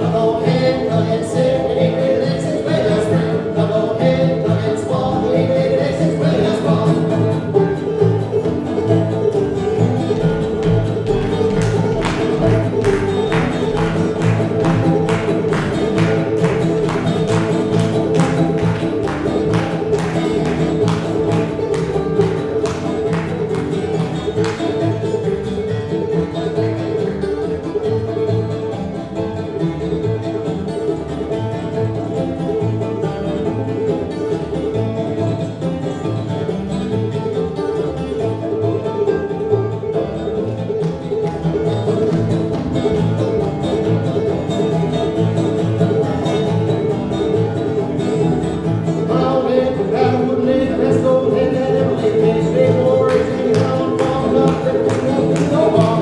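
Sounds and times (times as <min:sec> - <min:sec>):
bluegrass string band playing: 0:00.0 - 0:56.0.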